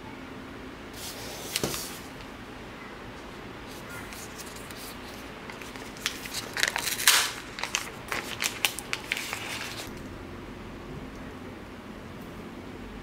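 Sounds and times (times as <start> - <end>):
plastic wrap crinkling: 3.8 - 10.0.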